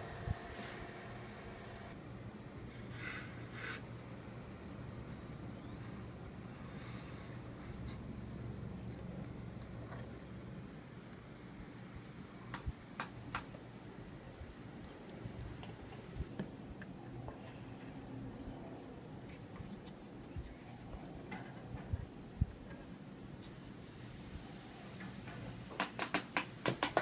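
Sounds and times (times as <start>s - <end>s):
faint low hum: 0.0s - 25.6s
plastic fan clicks and taps: 12.5s - 13.6s, 25.0s - 27.0s.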